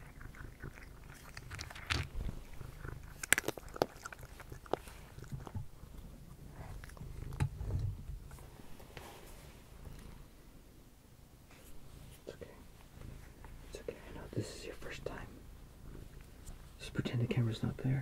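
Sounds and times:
cat crunching dry kibble: 0.0 - 8.4.

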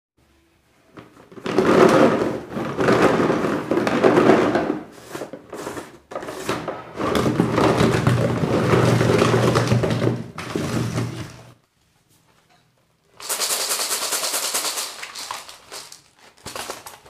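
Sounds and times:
wrapper crinkling and tearing: 13.2 - 17.0.

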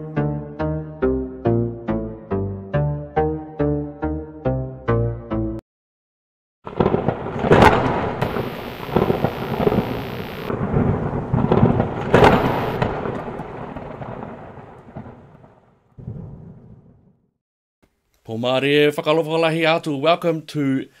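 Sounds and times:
loud booming hits: 6.7 - 17.1
thunder-like rumble: 6.7 - 17.2.

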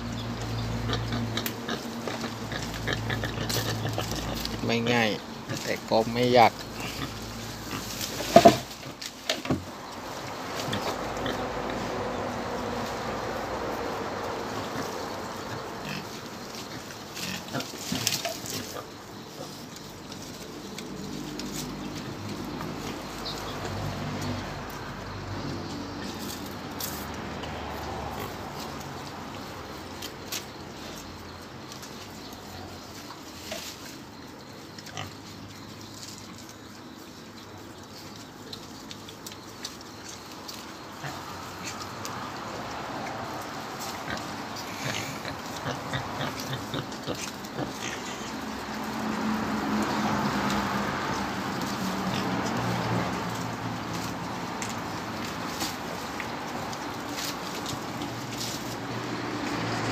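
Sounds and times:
pigs grunting: 0.0 - 9.1, 10.5 - 13.8, 14.4 - 30.1, 34.8 - 36.6, 40.8 - 59.9
steady background hiss: 1.4 - 23.4.

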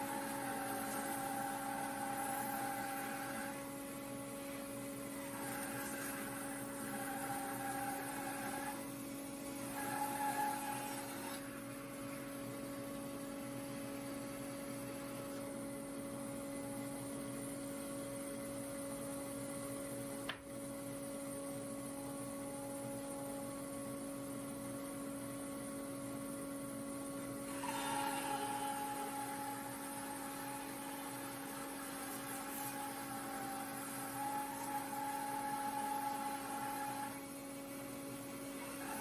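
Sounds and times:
bandsaw humming: 0.0 - 8.9, 9.5 - 11.6, 27.5 - 37.2.

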